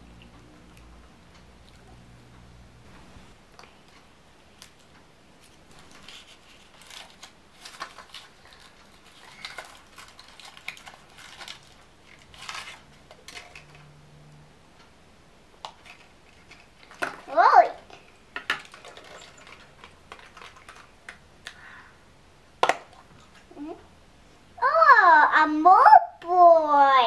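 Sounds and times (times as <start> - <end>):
foil crinkling: 4.6 - 13.9, 18.5 - 21.2.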